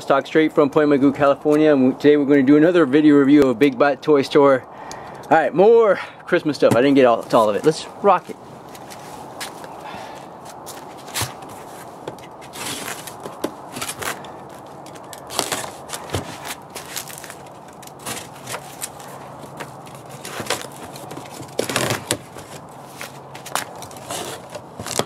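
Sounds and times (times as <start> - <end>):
tape peeling from cardboard: 10.9 - 25.0
box cutter scraping cardboard: 11.0 - 25.0.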